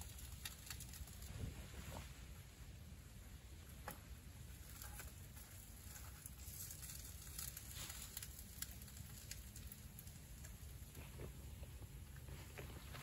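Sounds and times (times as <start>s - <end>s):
meat clicking in a skillet: 0.0s - 1.3s, 3.8s - 11.4s
low rumble of gas stove: 0.0s - 13.0s.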